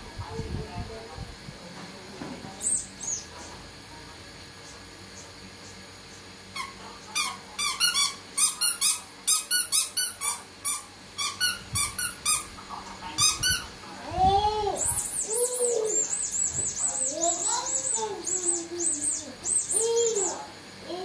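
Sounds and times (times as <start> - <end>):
squeaky toy squeaking: 6.6 - 12.4.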